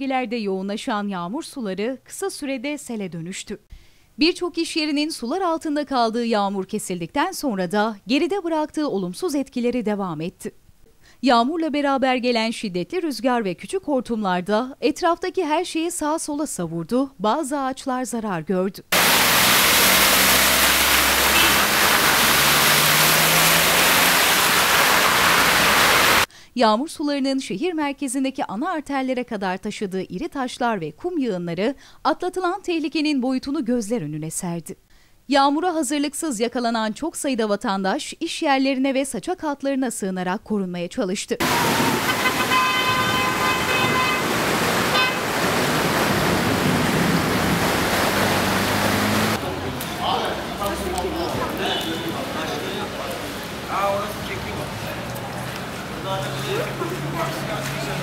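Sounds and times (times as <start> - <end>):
floodwater rushing: 18.9 - 26.3, 41.4 - 58.0
rushing hiss: 19.0 - 26.3
tyres pushing through water: 19.0 - 26.3, 41.4 - 58.0
car horn: 20.8 - 22.4, 41.4 - 45.3, 51.5 - 52.3.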